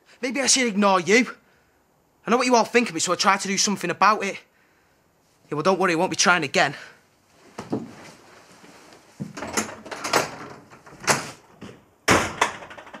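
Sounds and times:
door banging: 0:09.3 - 0:13.0
door knocks and thuds: 0:09.3 - 0:13.0.

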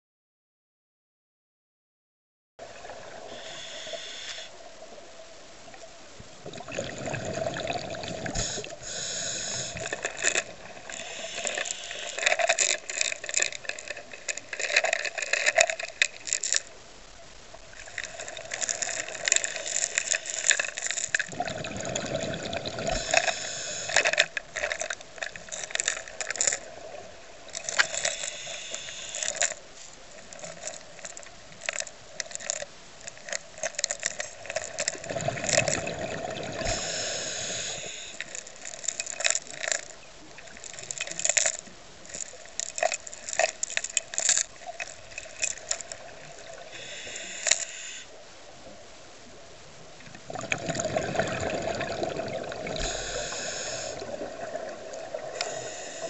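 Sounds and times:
steady hum: 0:03.2 - 0:50.0, 0:52.3 - 0:56.0
underwater clicks and crackling: 0:05.7 - 0:48.1, 0:49.9 - 0:56.0
exhaled bubbles rushing underwater: 0:06.4 - 0:08.7, 0:21.2 - 0:23.6, 0:35.0 - 0:36.9, 0:50.2 - 0:55.4.

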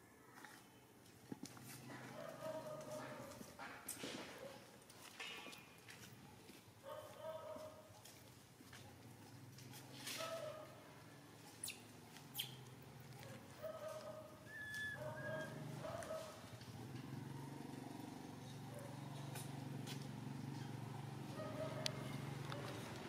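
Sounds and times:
high squeaky animal calls: 0:11.6 - 0:12.7, 0:14.5 - 0:15.6.

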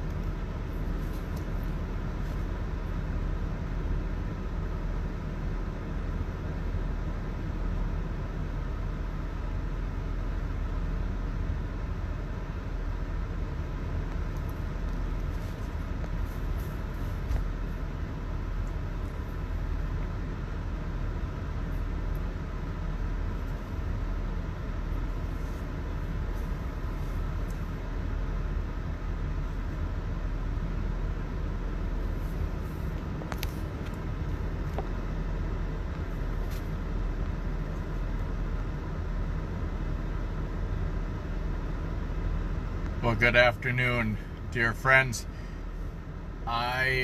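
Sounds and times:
vehicle cabin rumble: 0:00.0 - 0:47.0.

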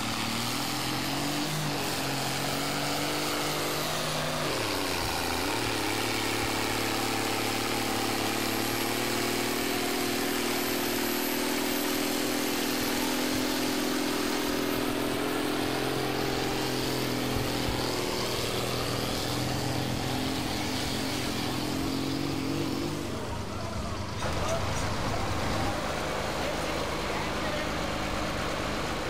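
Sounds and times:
tractor diesel engine under load: 0:00.0 - 0:29.0.

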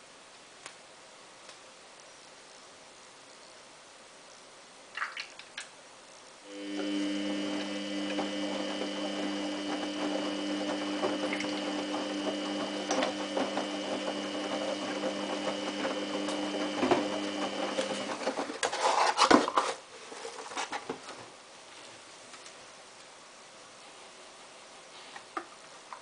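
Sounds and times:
washing machine drum motor hum: 0:06.5 - 0:18.6.

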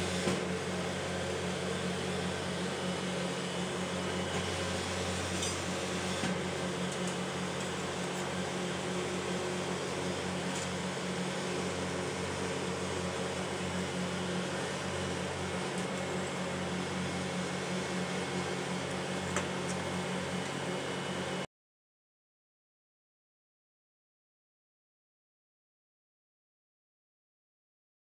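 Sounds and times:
refrigeration machinery humming: 0:00.0 - 0:21.5.

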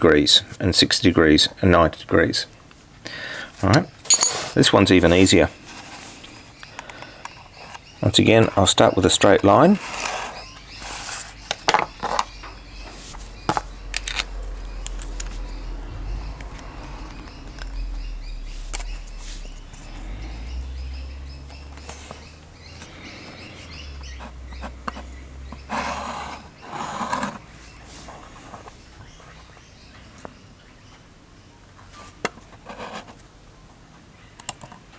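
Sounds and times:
compass scratching on paper: 0:09.7 - 0:11.4, 0:24.1 - 0:29.3
low steady hum: 0:11.4 - 0:31.6.

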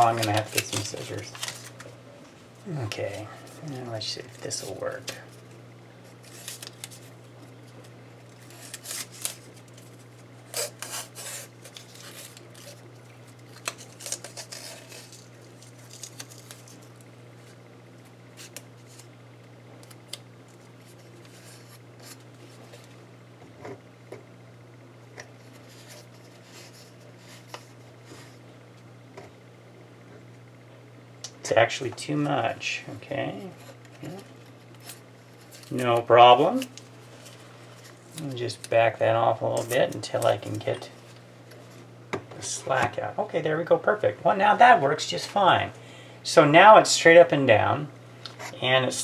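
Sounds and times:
tape rustling: 0:00.0 - 0:02.0, 0:06.1 - 0:19.1, 0:33.7 - 0:41.8.

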